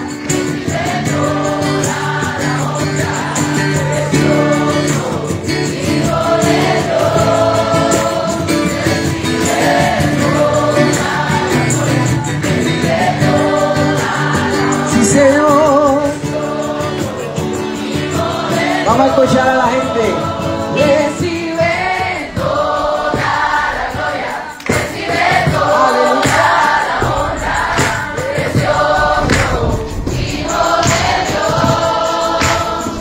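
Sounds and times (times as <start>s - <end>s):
group singing a worship song: 0.0s - 33.0s
strummed acoustic guitars: 0.0s - 33.0s.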